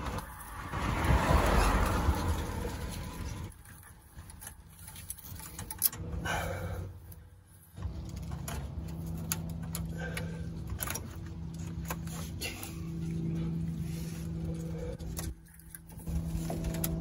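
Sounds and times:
steady low hum: 2.5s - 17.0s
metal fittings clicking and rattling: 3.4s - 6.0s.

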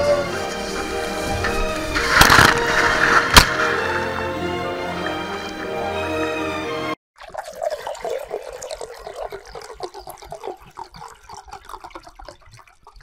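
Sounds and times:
water bubbling and gurgling: 7.2s - 13.0s.

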